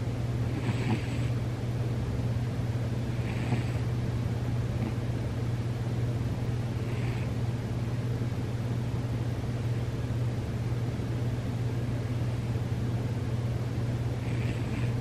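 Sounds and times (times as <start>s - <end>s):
cat snoring: 0.5s - 1.4s, 3.1s - 3.9s, 6.8s - 7.3s, 14.2s - 15.0s.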